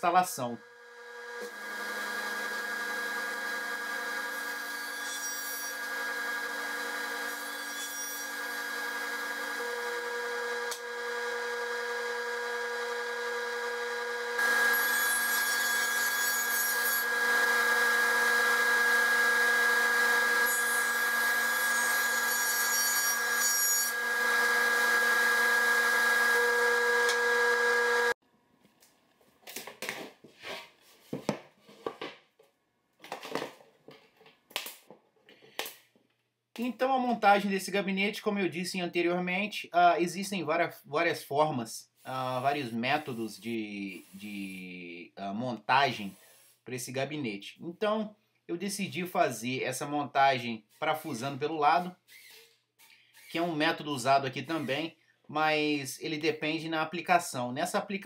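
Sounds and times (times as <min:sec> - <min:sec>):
table saw cutting plywood: 0:00.7 - 0:28.2, 0:53.2 - 0:54.9.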